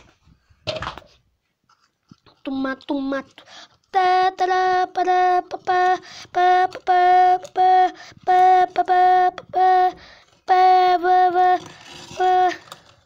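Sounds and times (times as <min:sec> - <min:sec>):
person chanting syllables: 0:02.3 - 0:12.7.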